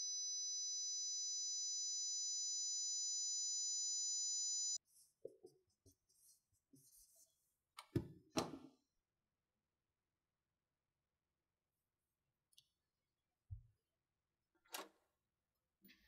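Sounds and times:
high-pitched ringing tone: 0:00.0 - 0:04.8
marker writing on whiteboard: 0:04.8 - 0:07.5.

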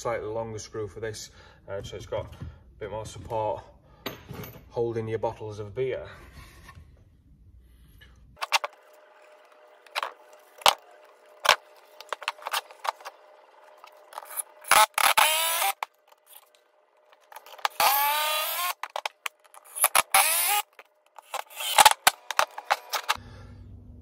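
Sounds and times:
cordless drill driving screws: 0:12.0 - 0:23.2.

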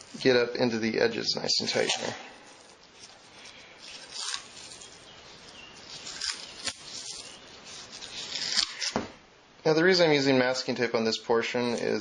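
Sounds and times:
masking tape rustling and crinkling: 0:00.0 - 0:00.4, 0:01.4 - 0:09.0
tape crackles: 0:01.6 - 0:09.0.

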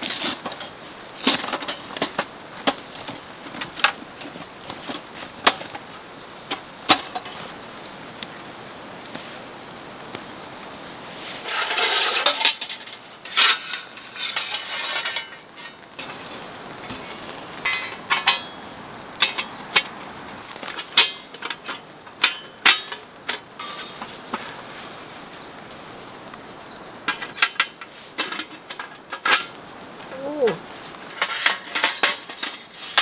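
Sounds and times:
metal panels clanking: 0:11.4 - 0:18.6, 0:31.0 - 0:33.0.

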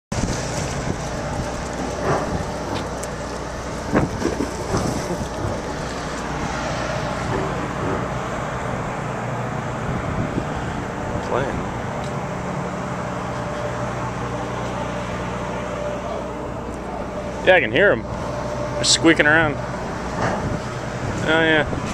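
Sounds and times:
rushing sea: 0:00.1 - 0:12.0
ship engines humming: 0:00.1 - 0:21.9
wind: 0:00.1 - 0:21.9.

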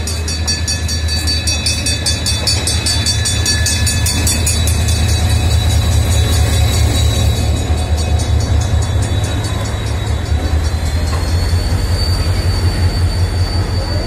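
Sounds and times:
locomotive engine rumble: 0:00.0 - 0:14.0
train rolling noise: 0:00.0 - 0:14.0.

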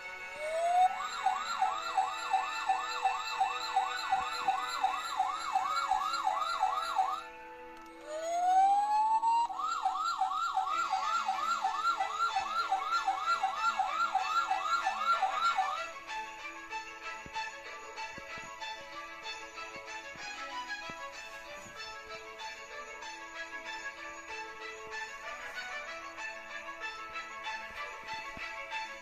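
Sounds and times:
electronic toy siren wailing: 0:00.2 - 0:16.0.

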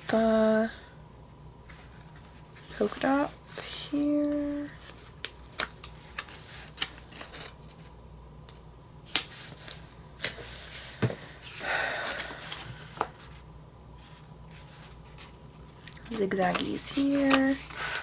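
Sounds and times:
paper rustling: 0:01.7 - 0:07.9, 0:14.5 - 0:18.0.

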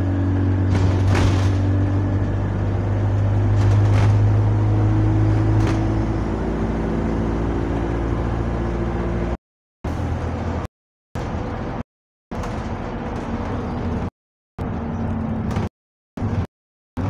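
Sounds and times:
bus diesel engine droning: 0:00.0 - 0:11.8.

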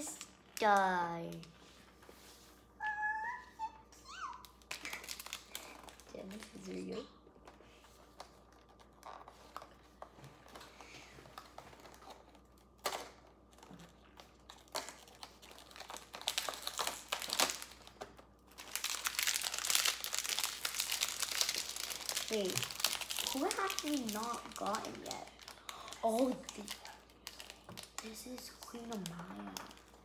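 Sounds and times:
packaging crinkling: 0:04.4 - 0:06.8, 0:11.4 - 0:30.0.

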